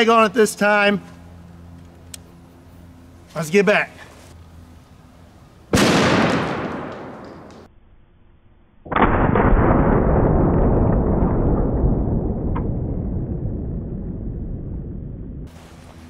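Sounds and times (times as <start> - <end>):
shotgun blast echoing: 5.7 - 7.7
slowed deep muffled rumble: 9.7 - 15.5.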